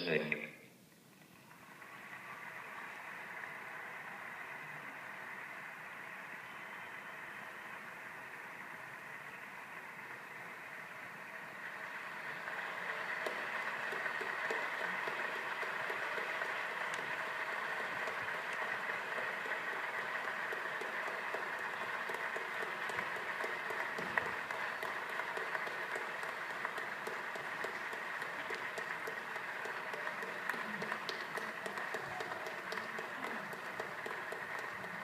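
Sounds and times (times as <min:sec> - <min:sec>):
audience applauding: 0:01.3 - 0:35.0.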